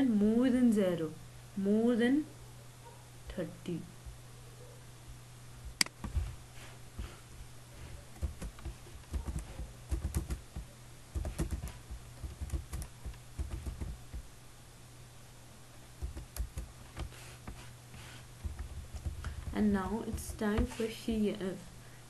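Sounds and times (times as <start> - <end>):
faint low hum: 0.0 - 22.0
keyboard typing: 8.1 - 14.2, 16.0 - 17.1.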